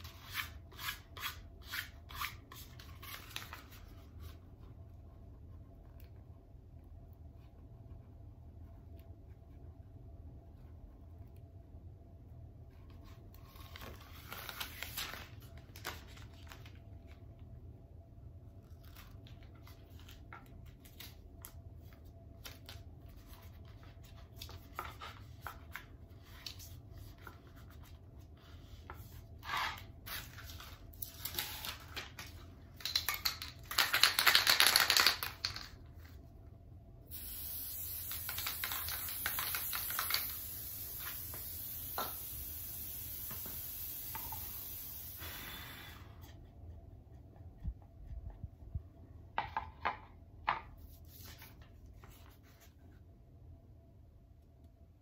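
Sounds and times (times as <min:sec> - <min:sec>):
contact paper rustling and crackling: 0:02.3 - 0:04.6, 0:12.8 - 0:17.4.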